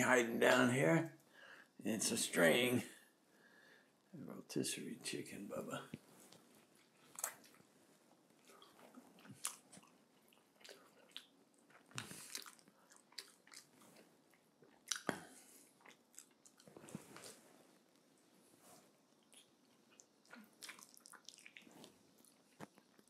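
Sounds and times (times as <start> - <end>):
man chewing food: 6.1 - 23.0
mouth smacks and clicks: 8.4 - 17.4, 19.2 - 23.0.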